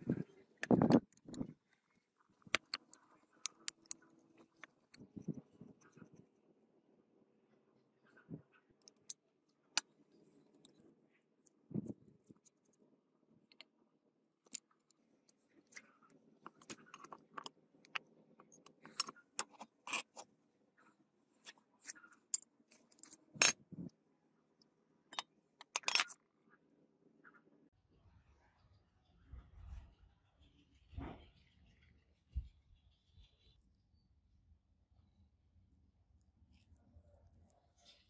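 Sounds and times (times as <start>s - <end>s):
metallic clinks and knocks: 25.1s - 26.2s.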